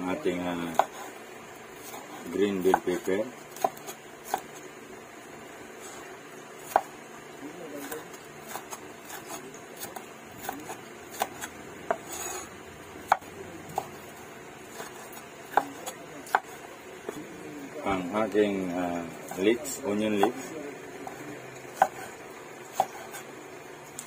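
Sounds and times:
knife chopping on wooden board: 0.7s - 1.1s, 1.8s - 3.0s, 3.6s - 4.5s, 6.6s - 6.9s, 7.8s - 14.0s, 14.7s - 17.2s, 20.1s - 20.4s, 21.0s - 23.3s.

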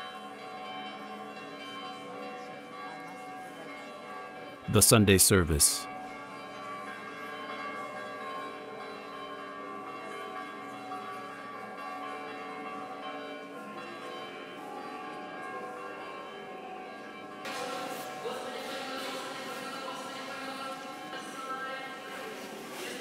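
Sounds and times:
church bells ringing: 6.1s - 17.4s.

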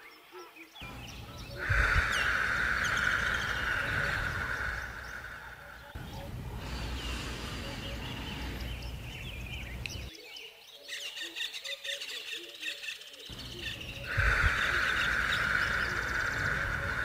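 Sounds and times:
birds chirping and calling: 0.0s - 17.0s
steady hiss: 0.8s - 10.1s, 13.3s - 17.0s.

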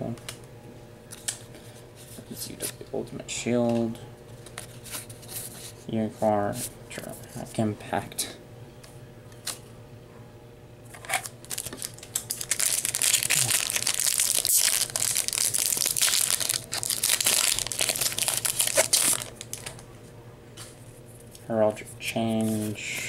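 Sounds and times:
foil wrapper crinkling: 11.0s - 19.8s.

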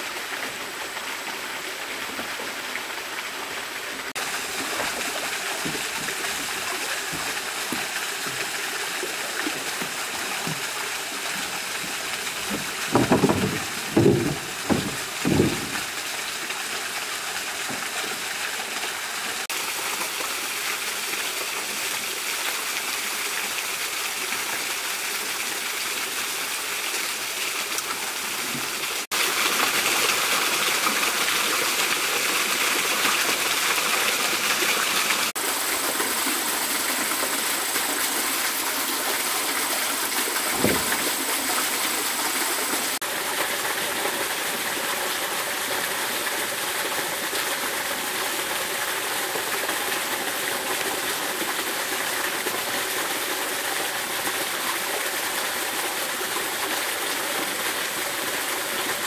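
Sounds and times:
stream and small waterfall: 0.0s - 59.0s
dull thump: 11.8s - 16.0s, 40.5s - 41.1s.

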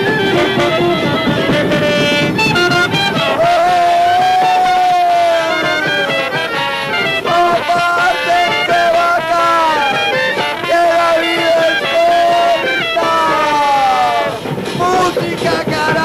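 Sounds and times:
instrumental music: 0.0s - 16.0s.

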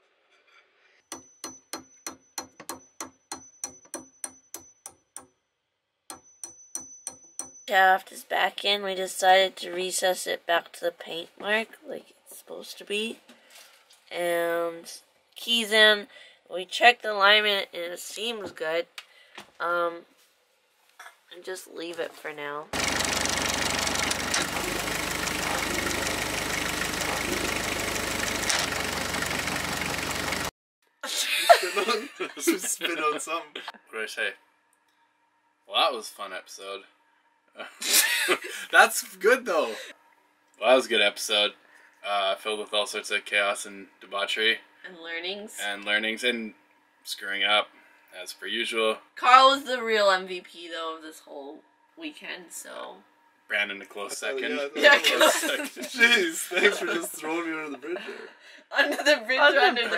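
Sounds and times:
hammer tapping on steel shaft: 1.1s - 5.3s, 6.1s - 7.7s
boat engine running: 22.8s - 30.5s.

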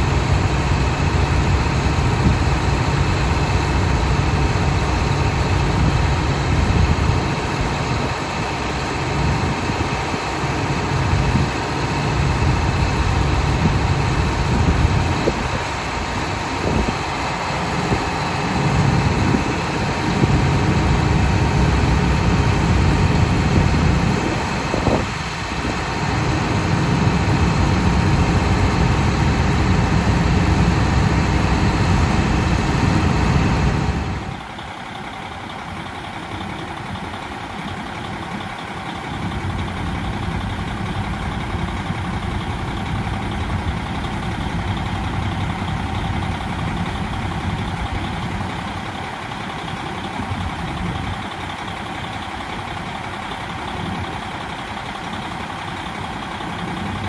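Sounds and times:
diesel railcar engine idling: 0.0s - 57.0s.

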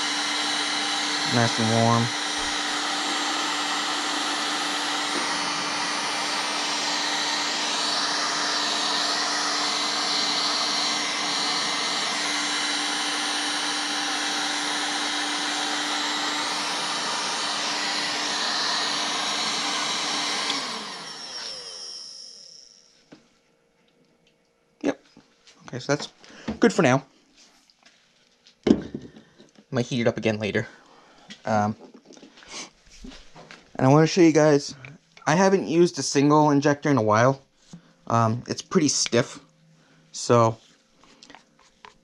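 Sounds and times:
fan winding down: 0.0s - 22.9s
heat gun blowing: 0.0s - 23.0s.

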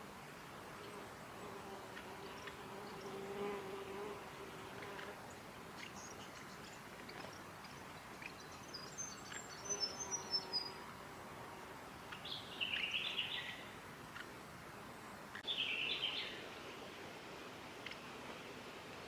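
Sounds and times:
small songbirds calling: 4.8s - 10.8s, 11.9s - 14.3s, 15.0s - 16.5s.

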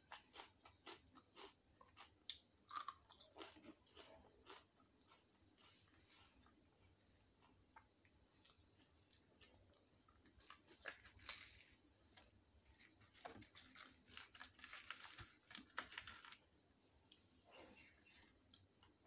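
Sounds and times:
fried bread tearing with crackles: 10.4s - 16.4s.

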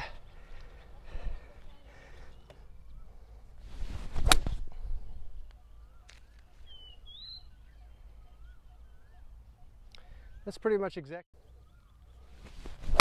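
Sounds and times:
small birds chirping: 0.0s - 3.6s, 4.4s - 12.8s
golf club swing swish: 3.6s - 5.0s, 12.4s - 13.0s.

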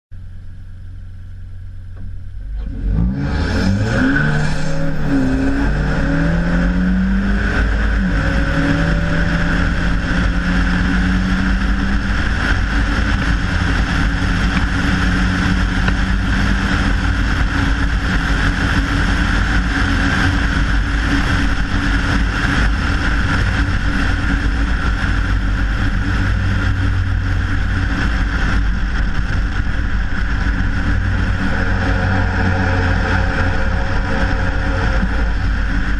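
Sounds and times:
car engine accelerating: 0.7s - 35.9s
wind and tyre rush: 2.0s - 35.9s.

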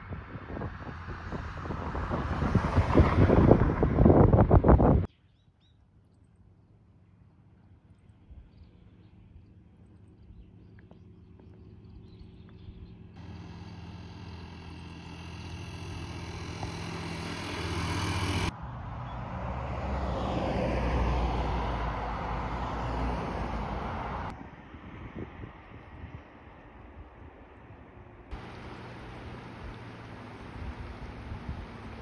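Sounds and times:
passing vehicle rumble: 0.0s - 5.1s, 8.9s - 27.0s, 27.6s - 32.0s
vehicle engine hum: 6.3s - 24.5s, 27.4s - 32.0s.

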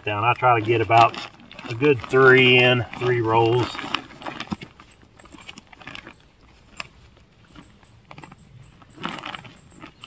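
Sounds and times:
crinkling fabric rustling: 0.0s - 7.0s.

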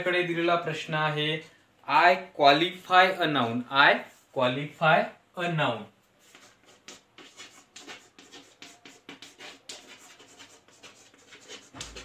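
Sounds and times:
chalk on a blackboard: 6.2s - 12.0s.

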